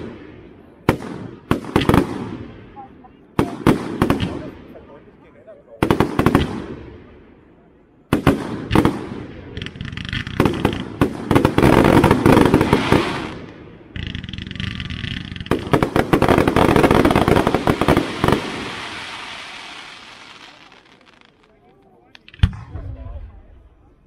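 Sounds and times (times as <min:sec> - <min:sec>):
firework crackling: 0:08.1 - 0:23.3.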